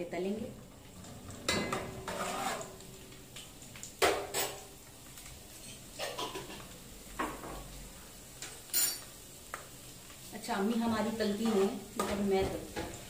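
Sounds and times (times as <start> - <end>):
metal kitchen utensils clinking: 1.2 - 2.8, 4.0 - 4.7, 8.4 - 9.1.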